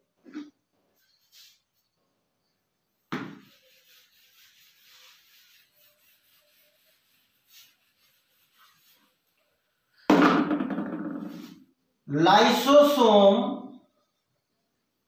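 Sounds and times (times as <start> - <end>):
duster rubbing on whiteboard: 3.3 - 9.4.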